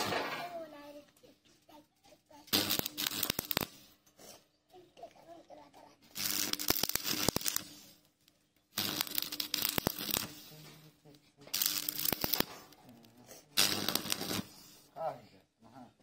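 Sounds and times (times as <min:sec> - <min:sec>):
welding arc crackling: 0:02.5 - 0:04.0, 0:06.1 - 0:08.0, 0:08.7 - 0:10.6, 0:11.5 - 0:14.8.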